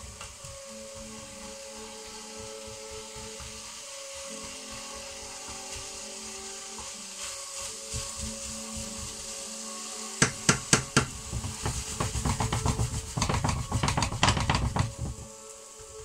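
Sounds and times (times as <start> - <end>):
faint hiss: 0.0 - 16.0
spatula knocking in frying pan: 10.2 - 15.3.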